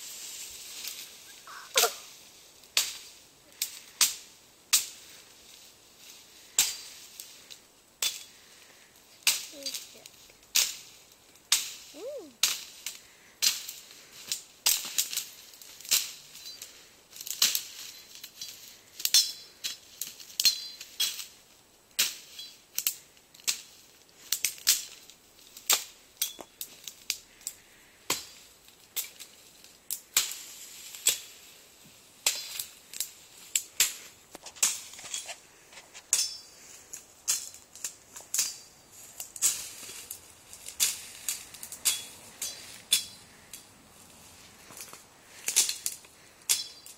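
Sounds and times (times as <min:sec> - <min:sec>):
machete chopping brush: 0:10.5 - 0:16.2, 0:39.3 - 0:43.2.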